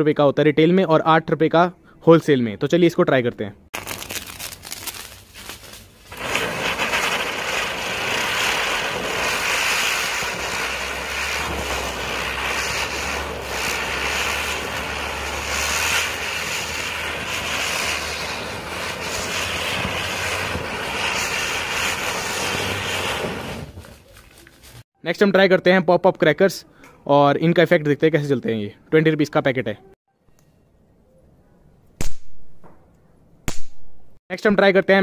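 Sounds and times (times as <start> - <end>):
spinning firework hissing: 3.8 - 24.8.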